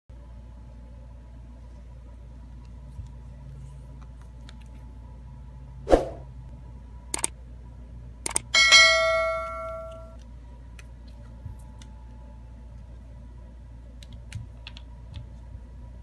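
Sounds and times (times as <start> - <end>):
short whoosh: 5.9 - 6.3
bell ding: 8.6 - 10.2.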